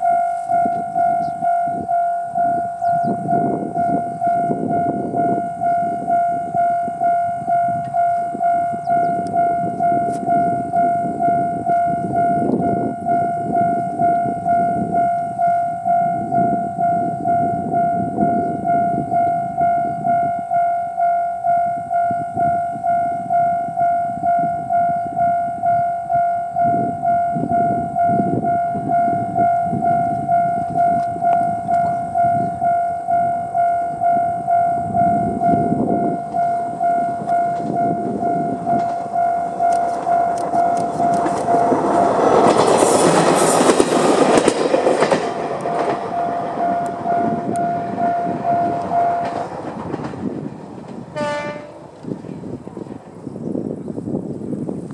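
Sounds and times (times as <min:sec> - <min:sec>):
level crossing bell ringing: 0:00.0 - 0:42.5, 0:45.6 - 0:49.6
railcar wheels clicking over joints: 0:35.5 - 0:54.9.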